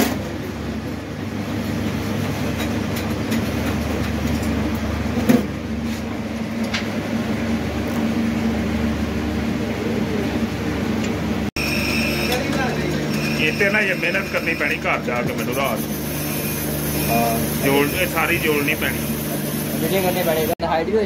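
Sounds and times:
boring machine motor hum: 0:04.8 - 0:20.6.

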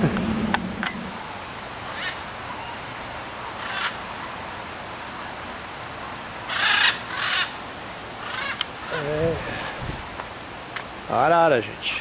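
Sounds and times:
macaws squawking: 0:01.9 - 0:02.8, 0:03.6 - 0:04.2, 0:06.5 - 0:07.6, 0:08.2 - 0:10.6.

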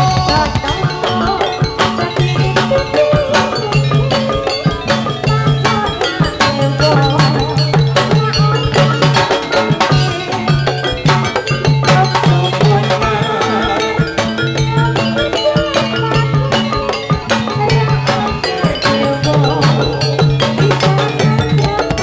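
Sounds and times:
fast loud drumming: 0:00.0 - 0:22.0
metallophone notes: 0:00.0 - 0:22.0.

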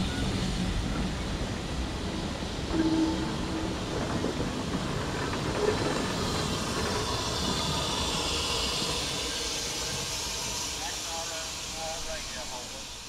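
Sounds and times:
steam train rolling on rails: 0:00.0 - 0:13.0
steam hiss: 0:04.9 - 0:13.0.

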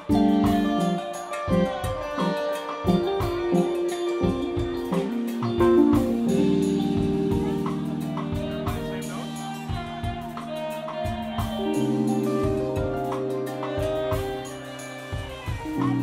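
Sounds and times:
guitar: 0:00.0 - 0:16.0
keyboard chords: 0:00.0 - 0:16.0
steady drum beat: 0:00.0 - 0:16.0
bass: 0:04.3 - 0:16.0.

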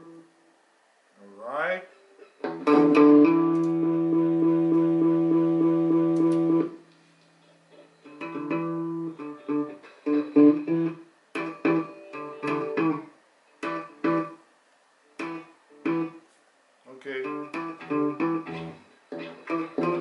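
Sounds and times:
electric guitar with delay: 0:02.4 - 0:06.8, 0:08.0 - 0:14.4, 0:15.2 - 0:16.2, 0:17.2 - 0:20.0.

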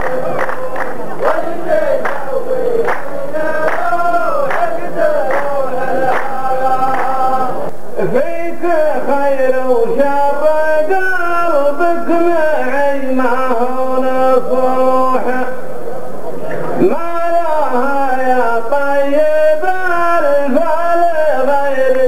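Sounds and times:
hand claps: 0:00.0 - 0:07.2
men chanting in unison: 0:00.0 - 0:15.6.

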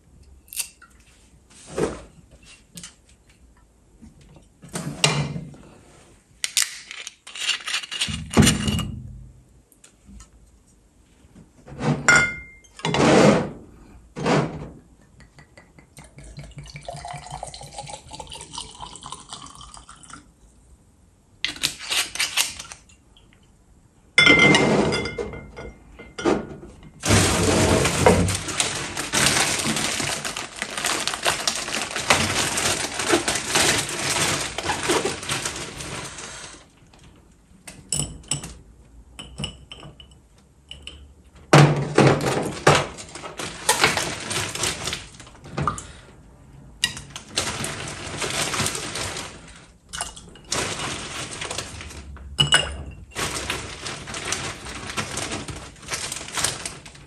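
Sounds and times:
glass knocks and clinks: 0:12.1 - 0:12.9, 0:24.2 - 0:26.6, 0:52.4 - 0:53.0
liquid pouring into glass: 0:16.0 - 0:20.3.

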